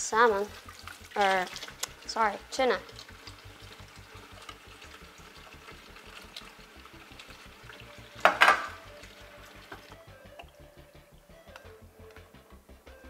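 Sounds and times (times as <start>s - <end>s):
liquid trickling: 0.0s - 11.5s
splash: 0.5s - 2.1s.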